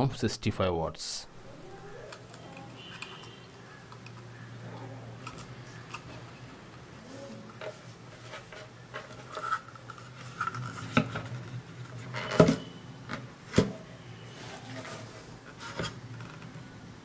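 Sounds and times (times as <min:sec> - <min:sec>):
rubbing and rustling: 0:07.0 - 0:12.4, 0:14.2 - 0:16.2.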